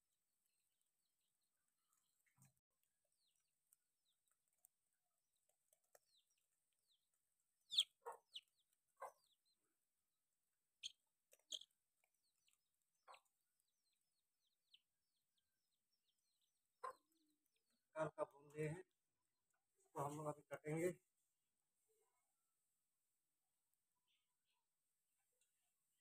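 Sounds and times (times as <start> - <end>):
chicken clucks: 7.7 - 9.6, 12.3 - 14.0, 16.8 - 18.7.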